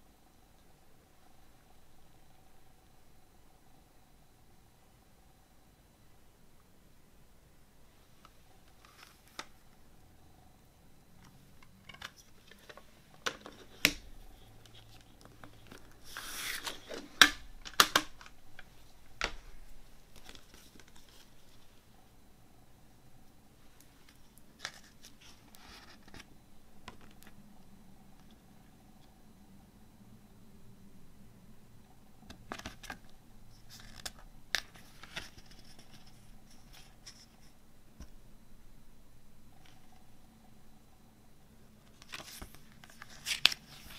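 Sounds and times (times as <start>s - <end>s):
paper pages turning: 12.0s - 18.1s, 20.1s - 21.6s, 41.9s - 43.9s
plastic case clicking: 16.9s - 18.3s.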